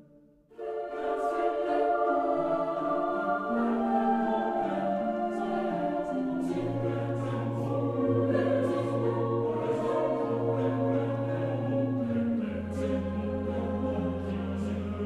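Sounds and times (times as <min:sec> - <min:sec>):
choir singing held notes: 0:00.5 - 0:15.0.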